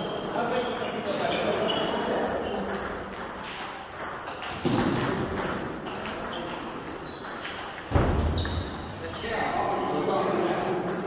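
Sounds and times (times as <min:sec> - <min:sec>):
table tennis ball pinging: 0:00.0 - 0:08.6.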